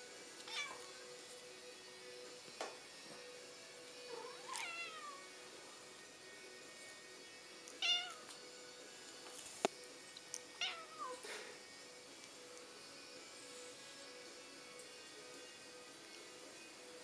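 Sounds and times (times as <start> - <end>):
cat meowing: 0.5 - 0.8, 4.2 - 5.3, 7.8 - 8.2, 10.6 - 11.2.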